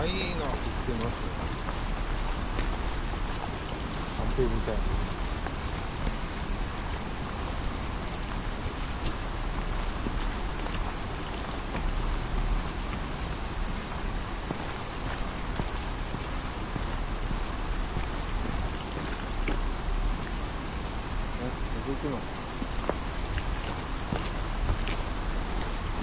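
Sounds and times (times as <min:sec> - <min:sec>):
rain falling: 0:00.0 - 0:26.0
sharp raindrop ticks: 0:00.0 - 0:26.0.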